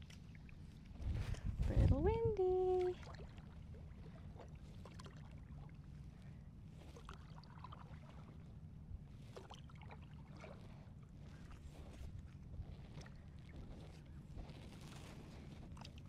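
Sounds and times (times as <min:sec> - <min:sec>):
wind rumble on microphone: 0:00.0 - 0:05.0, 0:10.3 - 0:16.0
paddle splashing in water: 0:03.0 - 0:05.7, 0:06.7 - 0:08.4, 0:09.2 - 0:16.0.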